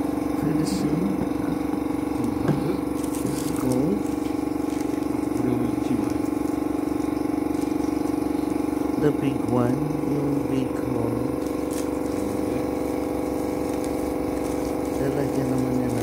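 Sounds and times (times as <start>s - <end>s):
machine hum: 0.0s - 16.0s
tissue paper crinkling: 2.8s - 8.7s, 11.3s - 16.0s.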